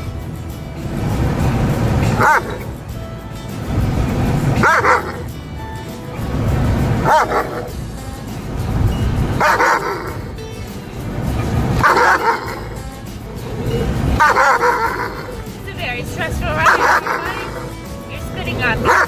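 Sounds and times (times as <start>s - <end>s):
background music: 0.0s - 19.0s
dog barking and yelping: 2.0s - 2.8s, 4.4s - 5.3s, 6.8s - 7.8s, 9.2s - 10.4s, 11.4s - 17.9s, 18.7s - 19.0s.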